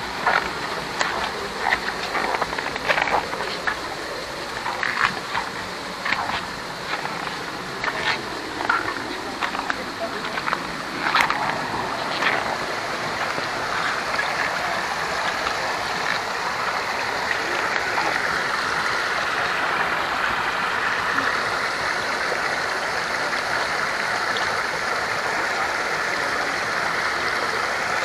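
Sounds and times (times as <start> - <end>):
flowing water rushing: 0.0 - 28.0.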